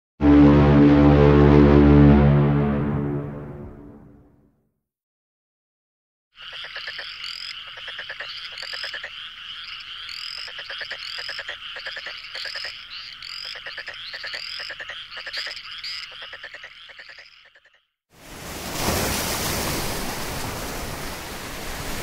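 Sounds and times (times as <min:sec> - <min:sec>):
chorus of calling frogs: 0:06.3 - 0:18.0.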